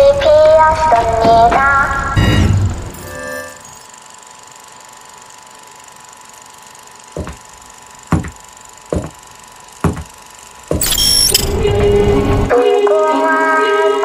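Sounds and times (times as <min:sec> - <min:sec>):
faint electronic tone: 0:02.2 - 0:03.9, 0:10.8 - 0:11.6
heavy thumps: 0:07.2 - 0:07.4, 0:08.1 - 0:09.2, 0:09.8 - 0:10.9.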